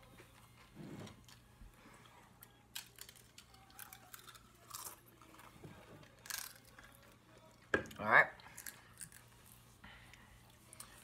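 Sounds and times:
potato chips crunching: 2.8s - 5.5s, 6.2s - 7.1s.

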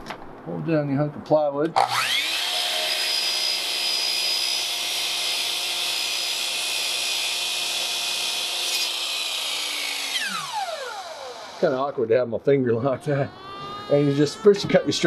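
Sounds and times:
miter saw motor whine: 1.8s - 12.0s.

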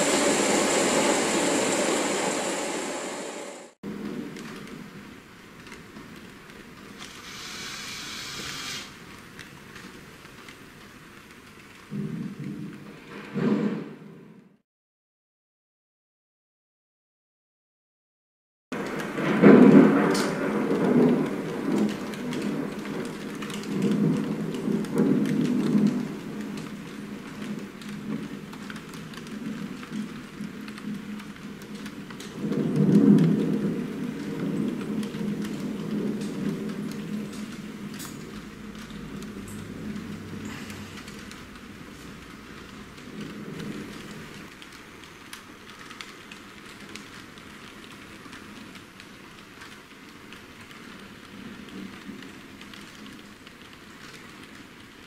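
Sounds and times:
rain patter: 0.0s - 13.3s, 18.7s - 55.0s
low thunder rumble: 18.8s - 44.5s.

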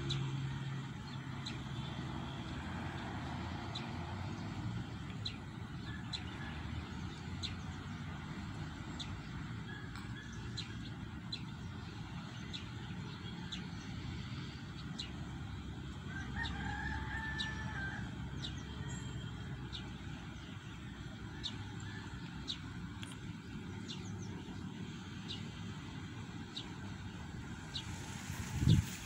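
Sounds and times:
rooster crowing: 16.1s - 18.2s.

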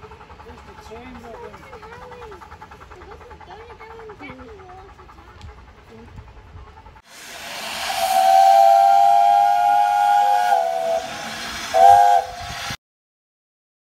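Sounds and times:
steam hissing: 0.0s - 12.8s
steam whistle blowing: 7.1s - 12.8s.

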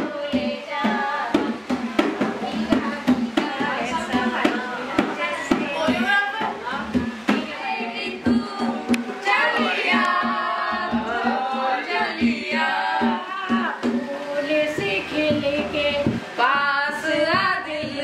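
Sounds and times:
singing over a steady beat: 0.0s - 18.0s.

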